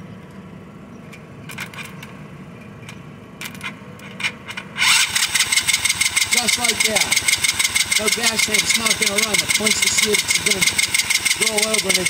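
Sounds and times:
jumper cable crackling clicks: 2.8 - 12.0
starter motor whirring whine: 4.8 - 12.0.

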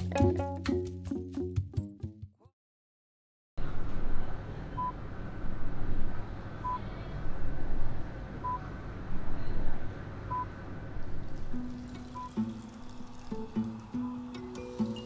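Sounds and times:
machine hum: 10.7 - 15.0.

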